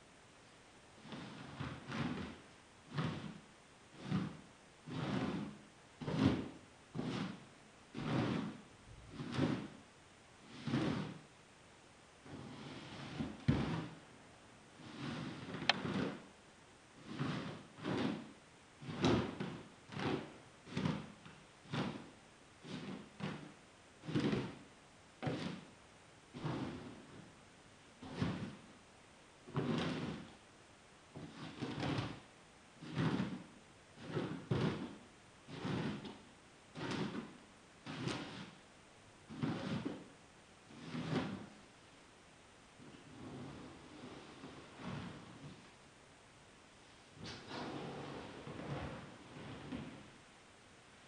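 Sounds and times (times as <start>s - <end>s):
hairbrush swishing through hair: 1.0s - 9.8s, 10.4s - 11.2s, 12.2s - 14.0s, 14.8s - 16.3s, 17.0s - 24.6s, 28.0s - 28.7s, 29.5s - 30.4s, 31.2s - 32.2s, 32.8s - 38.6s, 39.3s - 40.1s, 40.7s - 41.6s, 42.8s - 45.8s, 46.9s - 50.1s.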